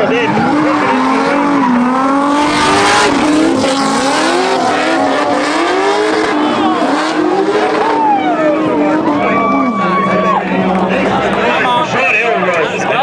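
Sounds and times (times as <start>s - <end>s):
car engines revving: 0.0s - 13.0s
tires screeching: 0.0s - 13.0s.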